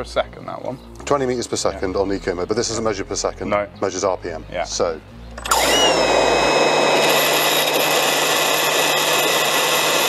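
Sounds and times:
electric chainsaw motor whine: 5.4s - 10.0s.

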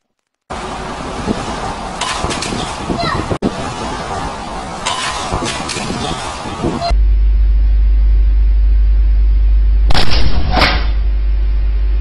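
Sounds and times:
loud low hum: 3.5s - 12.0s.

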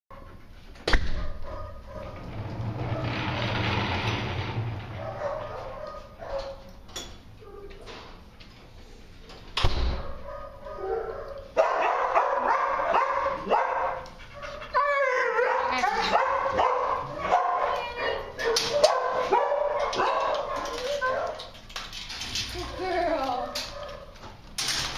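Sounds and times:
dog whining and yipping: 19.8s - 21.5s.

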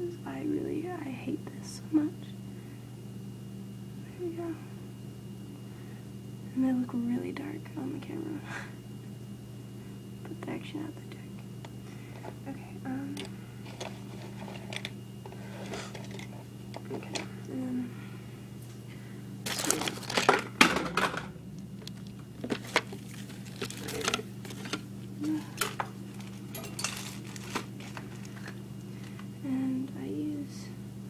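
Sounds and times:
steady low hum: 0.0s - 31.0s
rustling and clattering: 13.2s - 17.3s, 19.5s - 29.2s.

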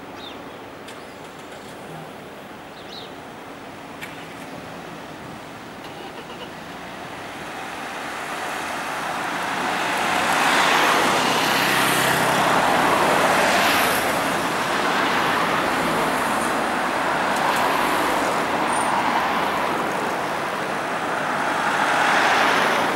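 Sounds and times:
cars driving past: 5.8s - 22.9s.

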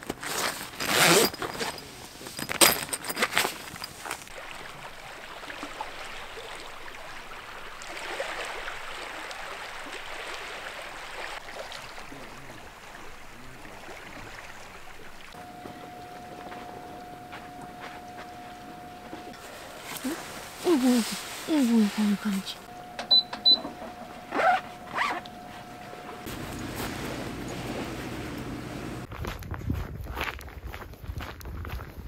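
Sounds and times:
tent zipper being pulled: 0.1s - 1.8s, 24.3s - 25.4s
sea waves rushing on shore: 25.4s - 29.1s.

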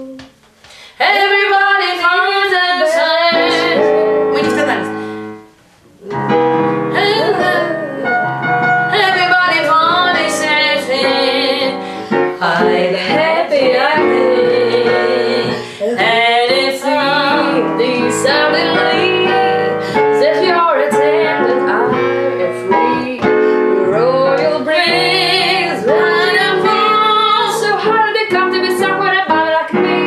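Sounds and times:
woman singing jazz: 0.0s - 5.2s, 6.0s - 30.0s
piano accompaniment: 0.0s - 30.0s.

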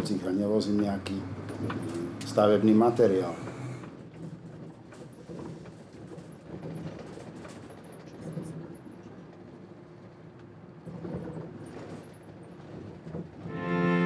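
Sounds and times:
bus engine and road noise: 0.0s - 14.0s
faint knocks and rattles: 3.8s - 9.6s, 10.4s - 13.5s.

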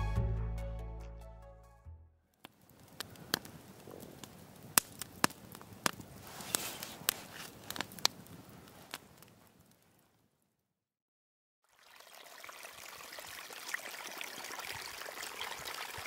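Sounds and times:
wood fire crackling: 2.3s - 10.5s
low steady hiss of fire: 2.3s - 10.6s.

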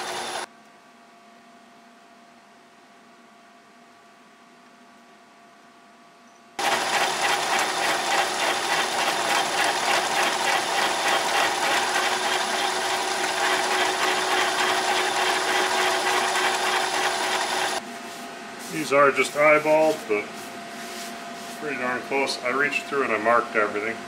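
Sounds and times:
milling machine drilling steel: 0.0s - 0.5s, 6.6s - 17.8s.

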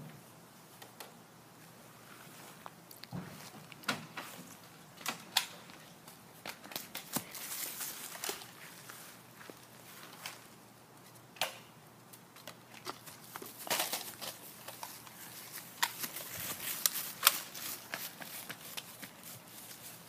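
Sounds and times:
children running on grass: 15.1s - 20.0s.

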